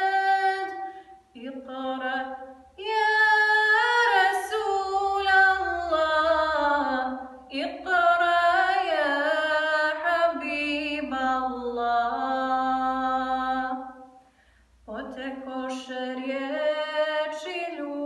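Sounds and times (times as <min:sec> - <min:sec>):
woman singing unaccompanied: 0:00.0 - 0:14.0, 0:14.9 - 0:18.0
singer breathing: 0:14.2 - 0:14.8.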